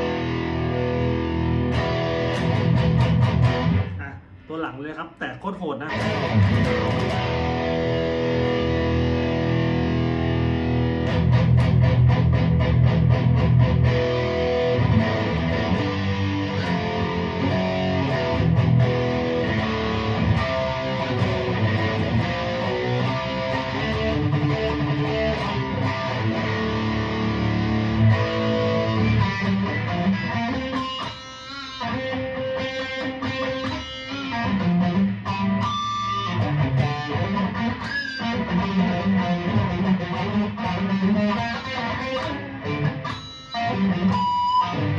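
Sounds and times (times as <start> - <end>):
distorted electric guitar: 0.0 - 44.9.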